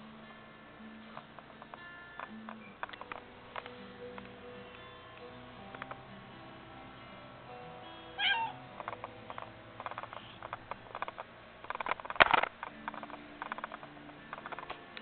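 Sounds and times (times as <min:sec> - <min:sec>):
background music: 0:00.0 - 0:15.0
cat meowing: 0:08.2 - 0:08.6.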